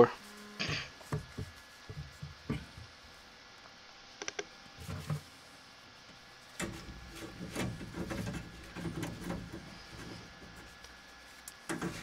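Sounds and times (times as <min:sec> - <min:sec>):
knocks scrapes and rustles on pipe: 0:06.6 - 0:12.0.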